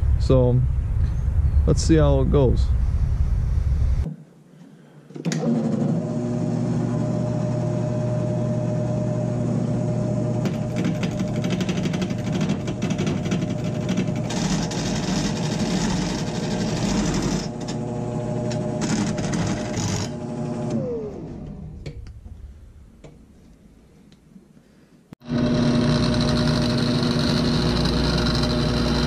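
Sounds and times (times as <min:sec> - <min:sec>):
wood lathe motor humming: 0:05.3 - 0:21.6, 0:25.2 - 0:29.0
turning tool rasping on wood: 0:10.7 - 0:17.7, 0:25.2 - 0:29.0.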